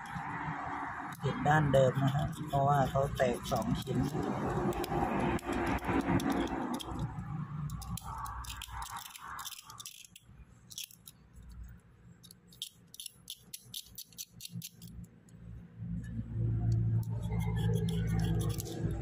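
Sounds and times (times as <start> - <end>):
knife blade clicks and scrapes: 2.0 - 11.6, 12.2 - 15.1, 16.6 - 19.0.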